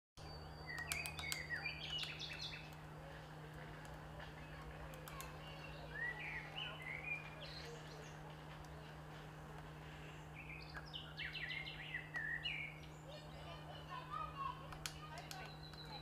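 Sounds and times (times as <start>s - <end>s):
songbirds chirping and whistling: 0.2s - 16.0s
steady low hum: 0.2s - 16.0s
sharp clicks: 0.7s - 2.8s, 4.7s - 5.6s, 14.7s - 16.0s.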